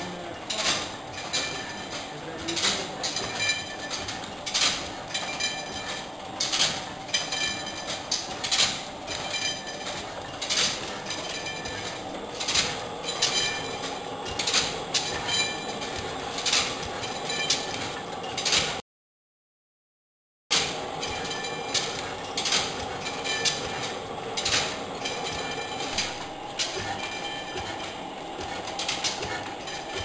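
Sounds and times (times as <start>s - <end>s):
gas engine mechanical clatter: 0.0s - 18.8s, 20.5s - 30.0s.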